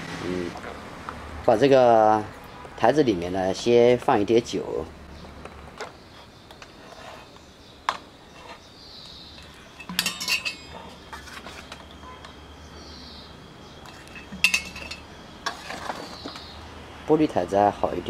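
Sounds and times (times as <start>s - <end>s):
metal spoon clinking on bowl and jar: 9.4s - 10.9s, 13.9s - 15.1s.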